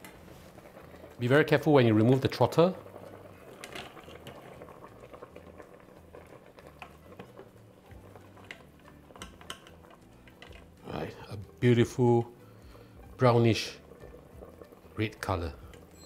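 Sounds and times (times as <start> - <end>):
sauce bubbling in a pot: 0.0 - 16.0
utensils tapping against pot: 3.5 - 4.6, 8.1 - 10.8, 14.0 - 16.0.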